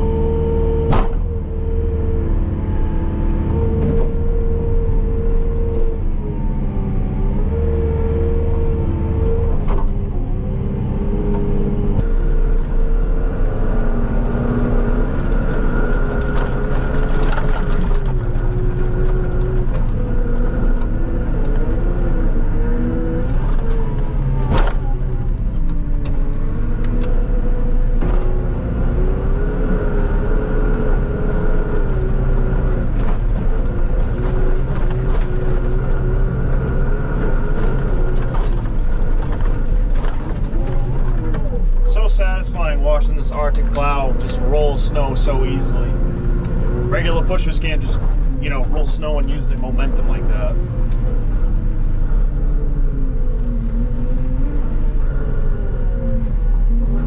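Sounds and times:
diesel engine under load: 0.0s - 57.0s
sharp clunk: 0.9s - 1.3s.

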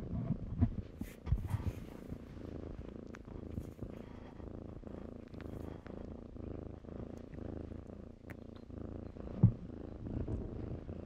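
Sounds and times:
kitten purring: 0.0s - 11.0s.

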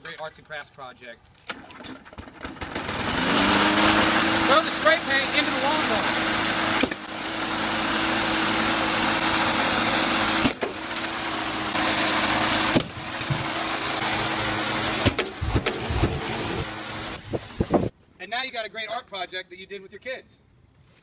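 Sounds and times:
lawn mower engine running: 1.5s - 17.9s
sharp knocks: 15.0s - 16.2s.

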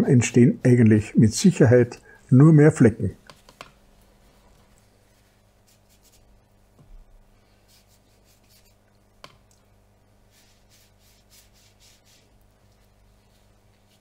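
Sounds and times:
brush scratching on paper: 5.0s - 6.4s, 7.5s - 8.8s, 10.2s - 14.0s.

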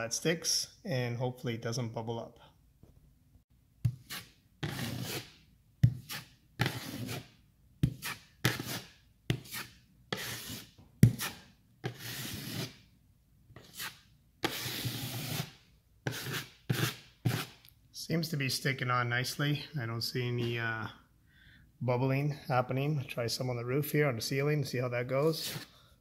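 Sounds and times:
taping knife scraping drywall: 3.9s - 12.9s, 13.6s - 17.6s, 25.3s - 25.8s.

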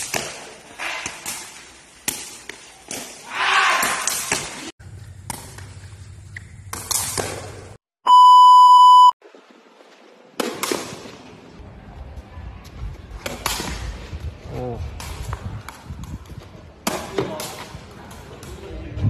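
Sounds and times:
steady test-tone beep: 8.1s - 9.2s.

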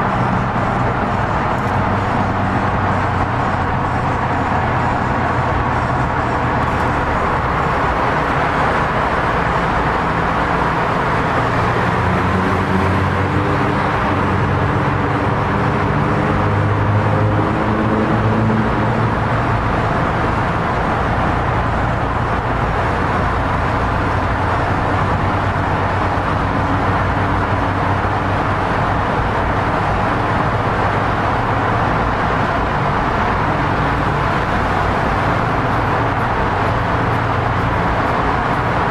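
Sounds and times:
car engine: 0.0s - 38.9s
road noise: 0.0s - 38.9s.

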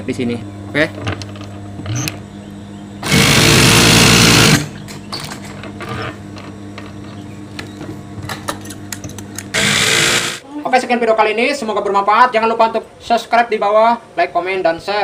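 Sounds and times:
steady low hum: 0.0s - 15.0s
sewing machine running: 3.0s - 4.7s, 9.5s - 10.4s.

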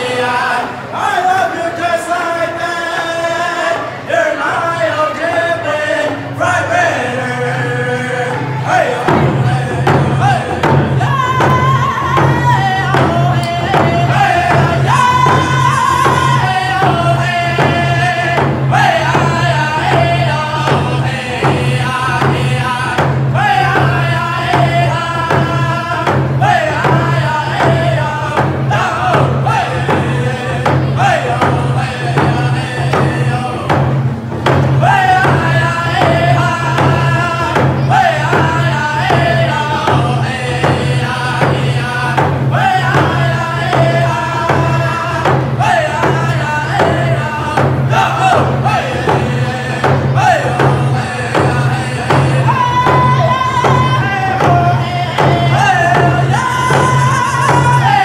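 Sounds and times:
men singing together: 0.0s - 58.0s
frame drums beating: 7.2s - 58.0s.

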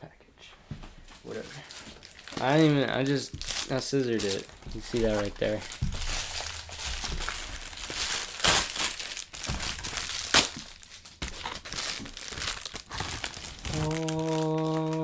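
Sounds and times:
packaging crinkling and tearing: 1.3s - 15.0s
sharp crack: 2.3s - 10.8s.

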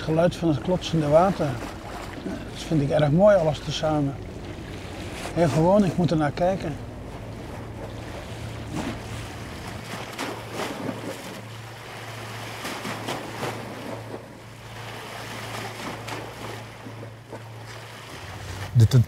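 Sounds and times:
steady low hum: 0.0s - 19.0s
seawater splashing against stone: 7.2s - 18.8s.

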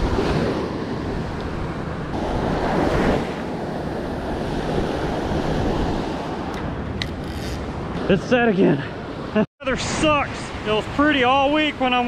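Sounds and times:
wind buffeting microphone: 0.0s - 9.3s.

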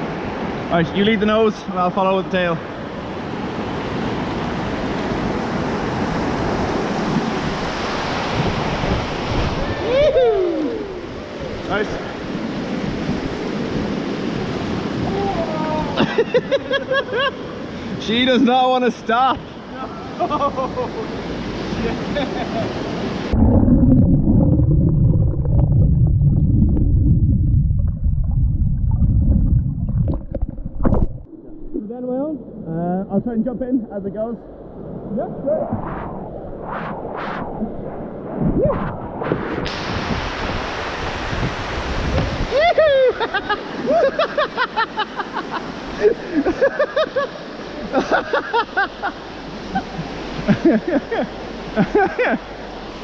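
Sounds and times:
water splashing: 23.3s - 31.8s
underwater turbulent water rumble: 23.3s - 32.9s, 34.4s - 42.4s.

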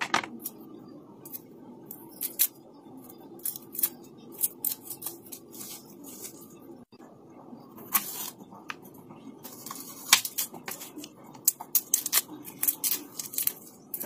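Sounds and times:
garlic skin crackling: 1.3s - 2.6s, 3.3s - 6.6s, 9.5s - 14.0s.

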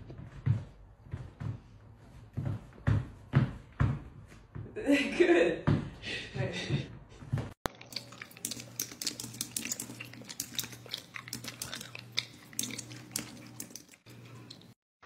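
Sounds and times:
low steady hum: 7.7s - 14.8s.

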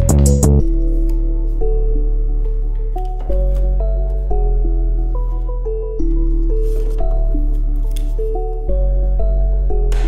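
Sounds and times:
steady low bass: 0.0s - 0.7s.

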